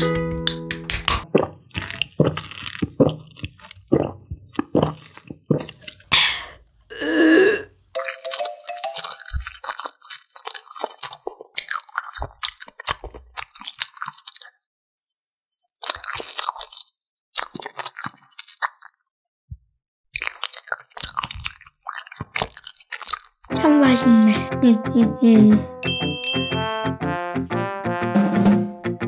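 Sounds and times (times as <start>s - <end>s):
sticky chewing: 1.2s - 6.1s, 8.0s - 14.6s, 15.5s - 19.0s, 20.1s - 24.2s
slurping through a straw: 1.2s - 14.6s, 20.2s - 23.6s.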